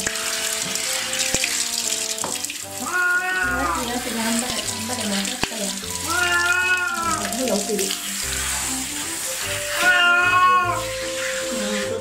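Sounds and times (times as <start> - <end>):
hand shower spraying water: 0.0 - 12.0
cat meowing: 2.8 - 4.0, 6.0 - 7.4, 9.5 - 11.0.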